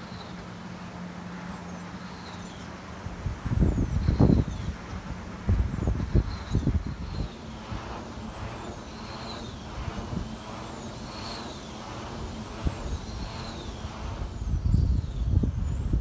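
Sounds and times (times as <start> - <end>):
wind turbine blades swishing: 0.0 - 16.0.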